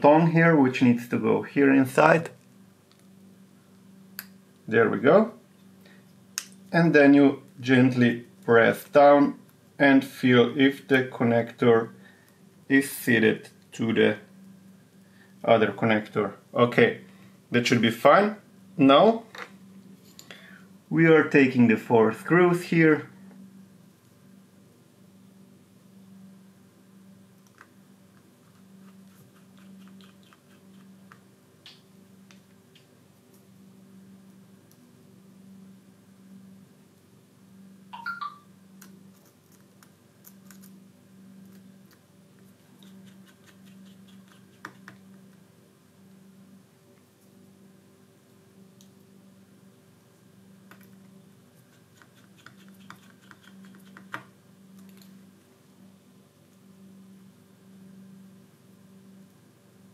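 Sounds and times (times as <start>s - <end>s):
low steady hum: 0.0s - 59.9s.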